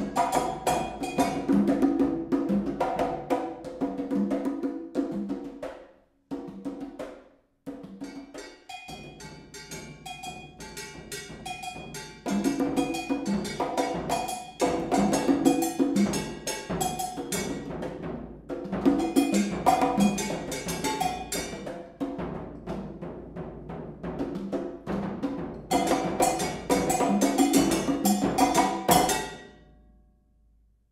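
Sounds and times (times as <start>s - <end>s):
drum ensemble music: 0.0s - 5.4s, 7.9s - 29.4s.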